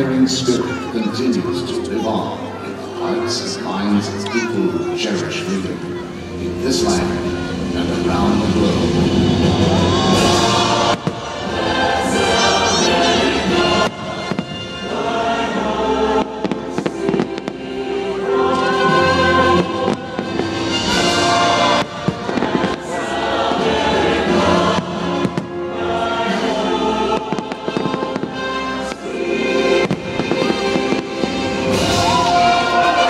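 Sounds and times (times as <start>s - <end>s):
choir singing: 0.0s - 33.0s
orchestral music: 0.0s - 33.0s
fireworks bursting: 8.4s - 15.2s, 15.8s - 17.8s, 18.5s - 33.0s.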